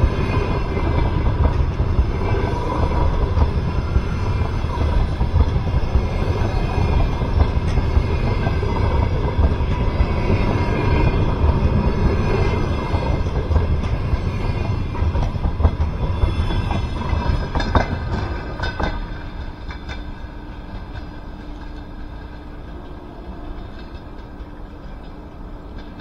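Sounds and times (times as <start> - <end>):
clacks over rail joints: 0.0 - 26.0
train wheels rumbling on rails: 0.0 - 26.0.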